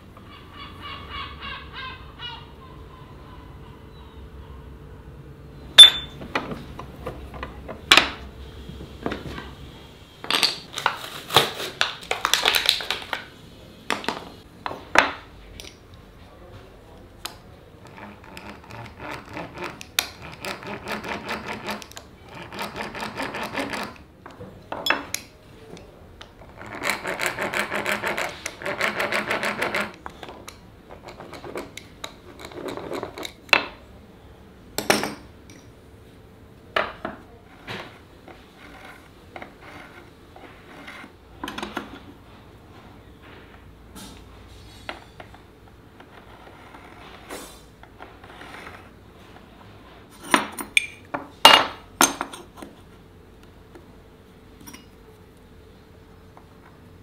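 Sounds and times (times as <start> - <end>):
tools knocking and clinking: 5.8 - 8.2, 23.4 - 25.3, 34.8 - 35.7, 50.2 - 52.7.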